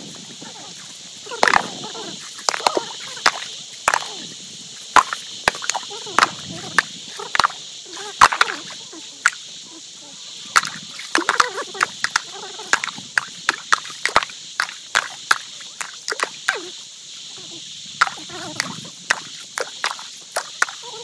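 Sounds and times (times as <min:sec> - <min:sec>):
insects droning: 0:00.0 - 0:21.0.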